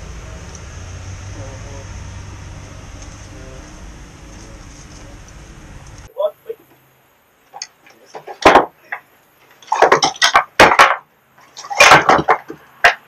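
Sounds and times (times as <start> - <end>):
hard objects knocking and clattering: 8.1 - 13.0.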